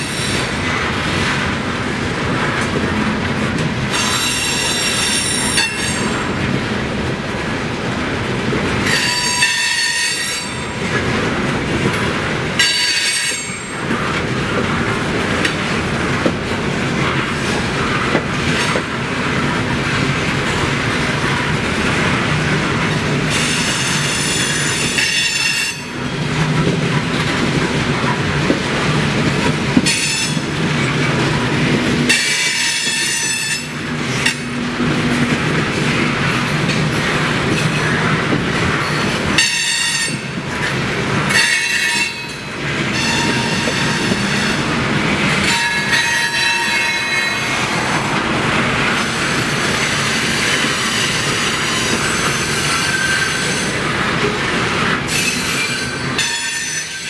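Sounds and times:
train wheels rumbling on rail: 0.0s - 57.0s
wheel flange squeal: 41.7s - 44.6s.

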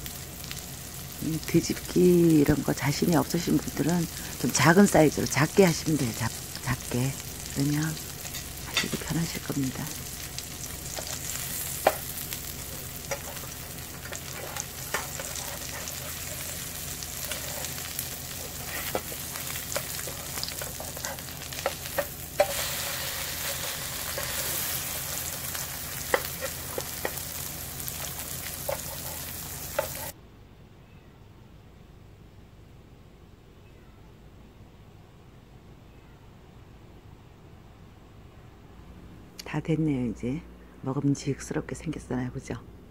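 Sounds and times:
pancakes sizzling in oil: 0.0s - 30.2s
metal spatula scraping pan: 10.9s - 27.2s, 28.0s - 30.1s.

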